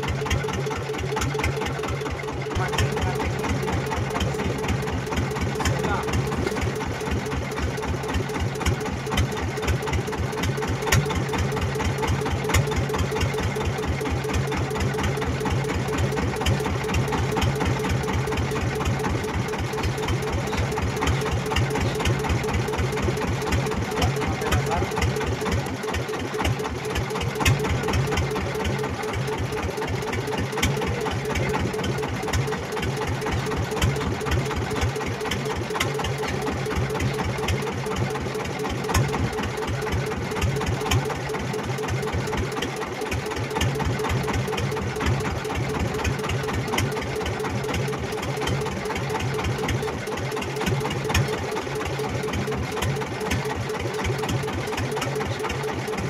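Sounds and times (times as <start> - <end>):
boat engine chugging: 0.0 - 56.0.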